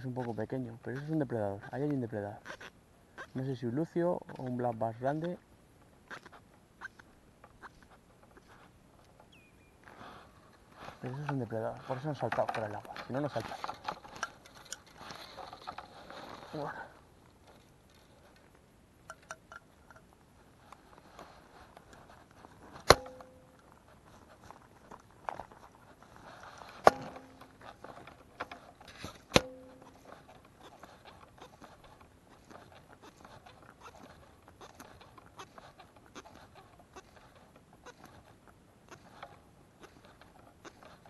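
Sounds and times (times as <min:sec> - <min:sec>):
fishing line rubbing on rod: 0:25.8 - 0:41.0
sharp hollow knocks: 0:26.8 - 0:27.4.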